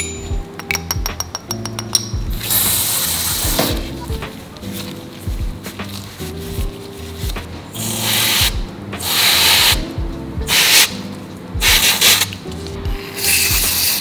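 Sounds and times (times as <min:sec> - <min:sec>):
aerosol spray can hissing: 0:02.4 - 0:03.8, 0:07.8 - 0:09.8, 0:10.5 - 0:11.0, 0:11.6 - 0:12.4, 0:13.0 - 0:14.0.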